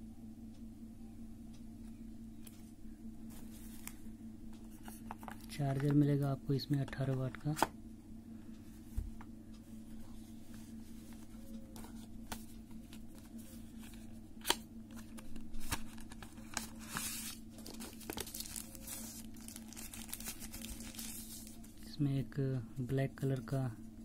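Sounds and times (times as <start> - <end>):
steady low hum: 0.0 - 24.0
packaging crinkling: 14.4 - 21.8.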